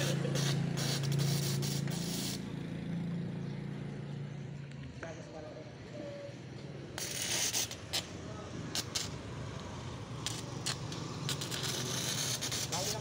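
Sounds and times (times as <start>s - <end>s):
arc welding hiss and crackle: 0.0s - 2.5s, 7.0s - 13.0s
sharp welding snaps: 0.0s - 2.5s, 6.9s - 13.0s.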